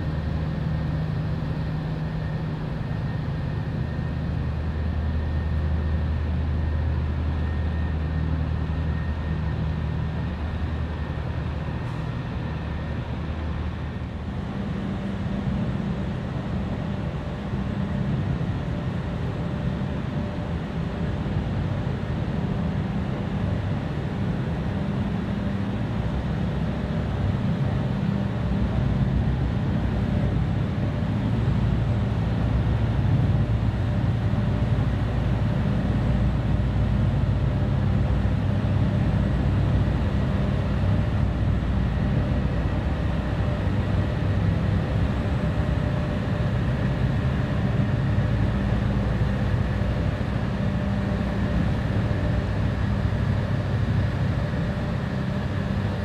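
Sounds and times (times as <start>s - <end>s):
boat diesel engines droning: 20.1s - 56.0s.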